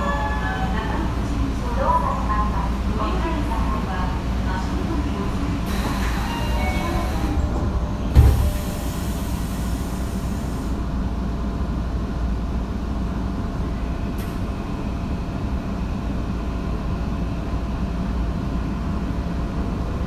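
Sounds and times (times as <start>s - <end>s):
train equipment rumbling: 0.0s - 19.0s
thump: 8.1s - 8.6s.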